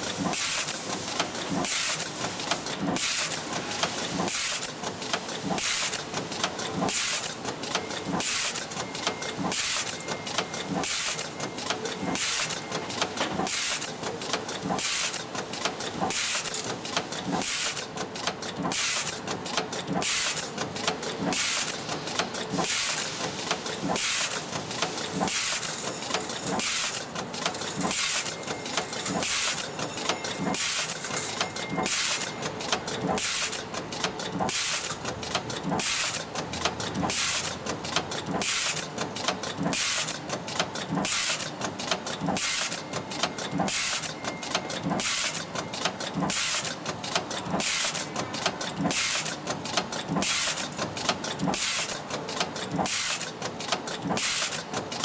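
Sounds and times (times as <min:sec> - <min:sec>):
mechanical clacks of press: 0:00.0 - 0:55.0
pneumatic air hissing: 0:22.6 - 0:25.7, 0:39.7 - 0:40.1, 0:41.0 - 0:41.5, 0:47.6 - 0:48.0, 0:48.9 - 0:49.3, 0:52.8 - 0:53.3, 0:54.2 - 0:54.6.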